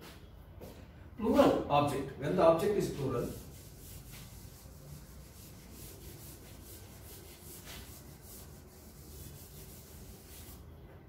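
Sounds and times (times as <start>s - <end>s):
eraser rubbing on chalkboard: 2.7s - 10.7s.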